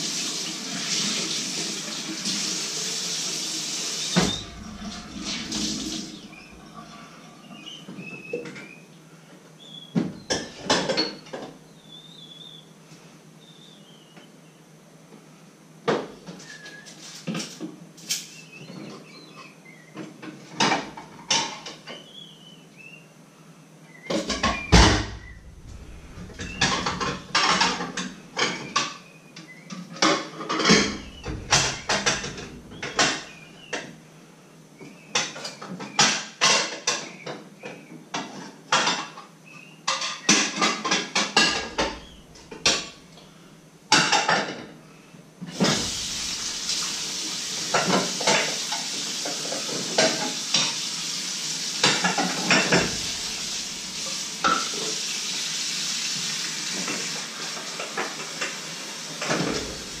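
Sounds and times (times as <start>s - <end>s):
running tap water: 0.0s - 7.4s, 24.3s - 28.9s, 30.5s - 33.7s, 41.4s - 43.0s, 45.5s - 60.0s
dishes and cutlery clattering: 25.6s - 29.0s, 30.0s - 33.4s, 39.9s - 43.0s, 51.8s - 54.7s.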